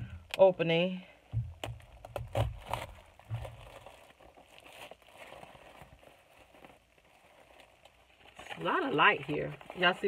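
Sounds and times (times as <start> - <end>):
package knocks and thumps: 1.3 - 4.0
plastic crinkling: 1.6 - 10.0.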